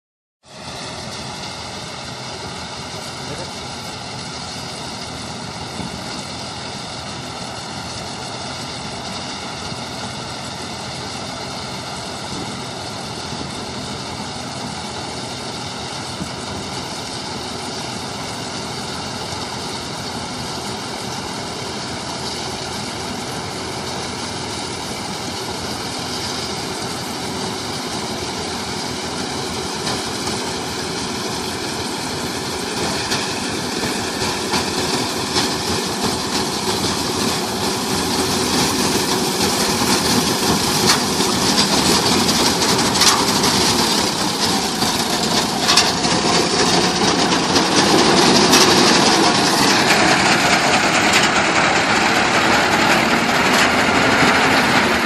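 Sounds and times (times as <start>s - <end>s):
combine harvester engine running: 0.4s - 55.0s.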